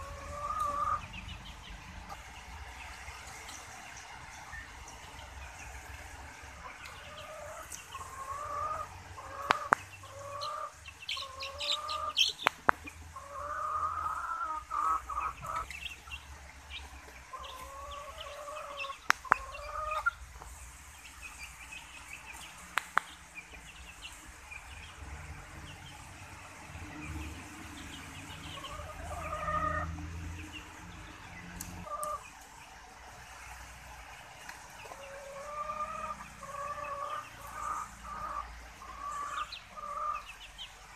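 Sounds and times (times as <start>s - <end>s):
chicks peeping: 0.0s - 40.9s
sharp clicks: 22.7s - 23.2s.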